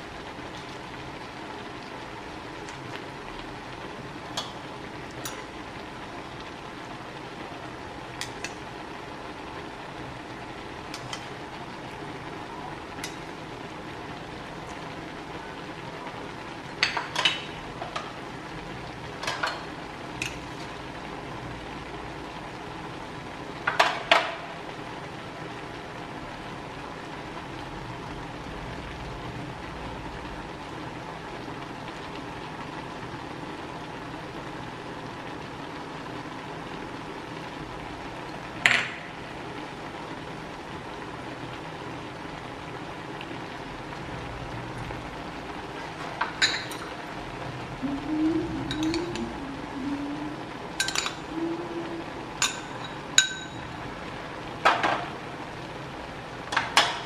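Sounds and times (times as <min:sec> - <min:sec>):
low background noise: 0:00.0 - 0:57.0
metal spoon clinking on wok: 0:50.8 - 0:51.2, 0:52.4 - 0:53.7.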